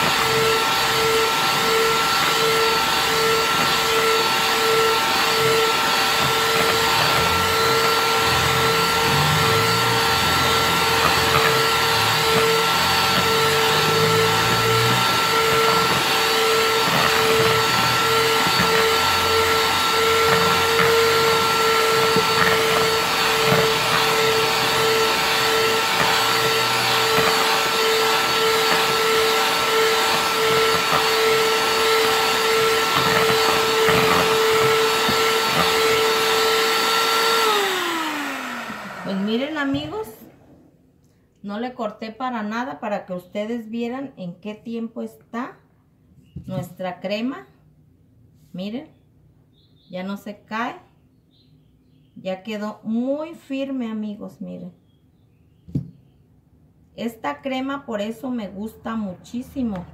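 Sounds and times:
electric hand mixer whipping cream: 0.0s - 40.3s.

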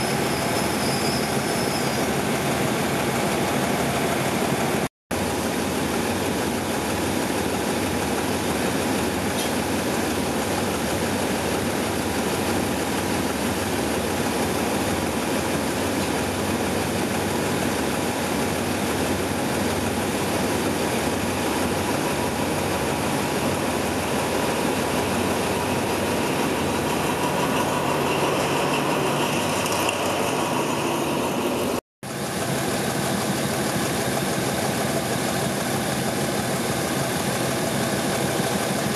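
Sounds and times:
high squeal: 0.0s - 2.5s, 24.6s - 31.8s
diesel locomotive engine rumble: 0.0s - 38.9s.

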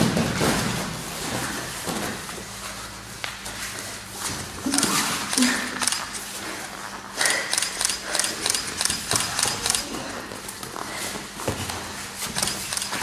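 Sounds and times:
quick repeated breaths: 4.7s - 11.4s.

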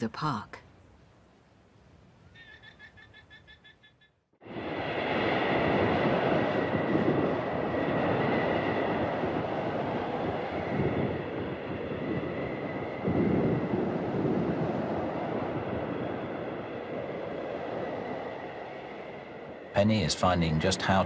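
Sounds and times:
faint high wind whistle: 4.4s - 21.0s
strong blizzard wind rushing: 4.4s - 21.0s.

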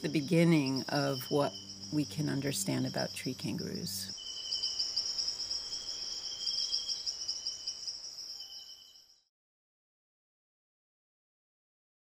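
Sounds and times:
insects trilling: 0.0s - 9.3s.

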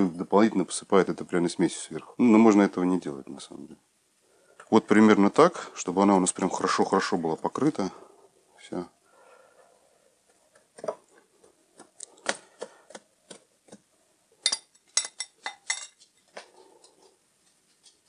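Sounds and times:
metal spoon and shaker clinking: 14.4s - 16.3s.

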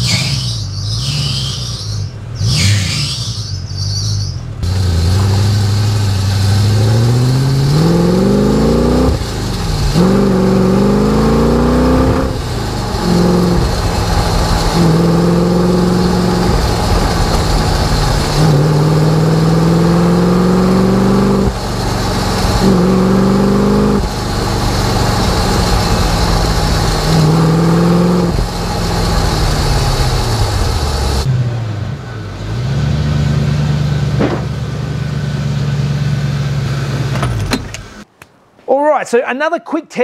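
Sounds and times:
car engine accelerating: 0.0s - 38.1s
road and wind noise: 0.0s - 38.8s.

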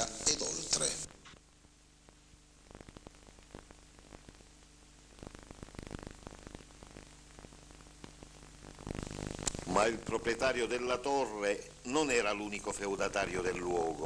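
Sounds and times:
low hiss: 0.0s - 14.0s
mains hum: 0.0s - 14.0s
faint crackling clicks: 1.2s - 9.7s.

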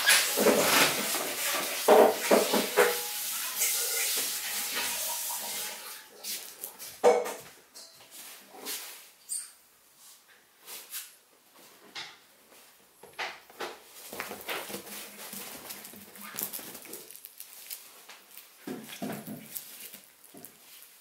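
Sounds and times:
cloth toy rustling: 13.8s - 21.0s.

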